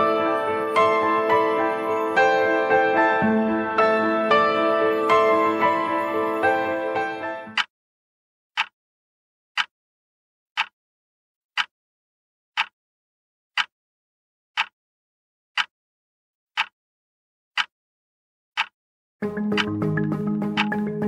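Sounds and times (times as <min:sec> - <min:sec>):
wall clock ticking: 0:07.5 - 0:07.7, 0:10.6 - 0:10.8, 0:12.6 - 0:12.8, 0:14.6 - 0:14.8, 0:16.6 - 0:16.8, 0:18.6 - 0:18.8, 0:19.5 - 0:19.8, 0:20.6 - 0:20.8.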